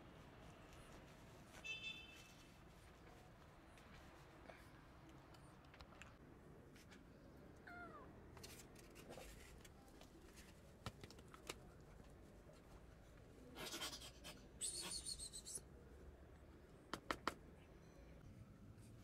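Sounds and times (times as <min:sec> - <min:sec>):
cat meowing: 0:07.6 - 0:08.1.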